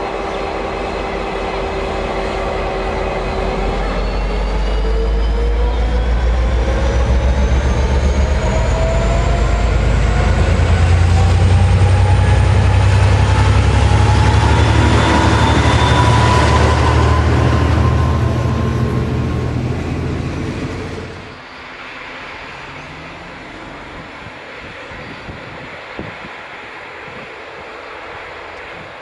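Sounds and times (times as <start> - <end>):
carriages rolling on rails: 0.0 - 29.0
diesel locomotive engine drone: 0.0 - 29.0
rising whine: 0.0 - 29.0.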